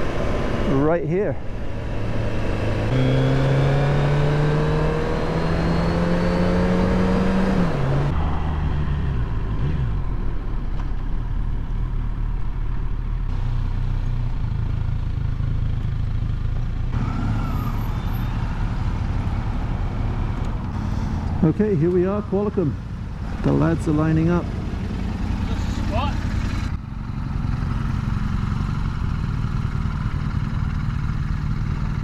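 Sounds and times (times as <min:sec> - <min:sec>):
motorcycle engine accelerating: 0:00.0 - 0:32.0.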